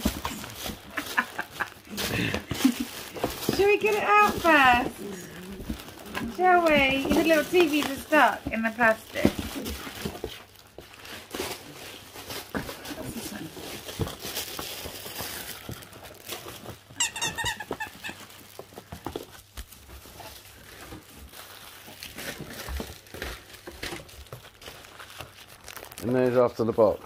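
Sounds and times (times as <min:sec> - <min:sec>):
packaging and cardboard rustling: 0:00.0 - 0:27.0
high squeaks: 0:17.0 - 0:18.2.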